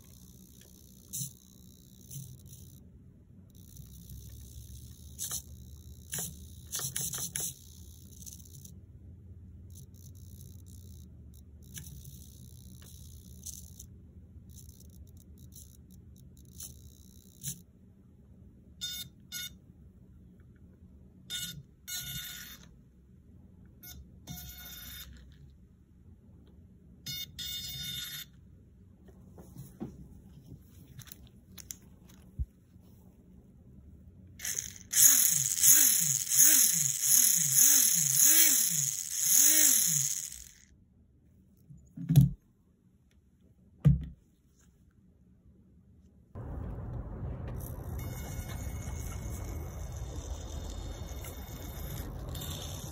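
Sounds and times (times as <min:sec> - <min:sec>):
small electric motor whining: 0:00.0 - 0:02.8, 0:03.5 - 0:08.7, 0:34.4 - 0:40.7, 0:47.5 - 0:52.9.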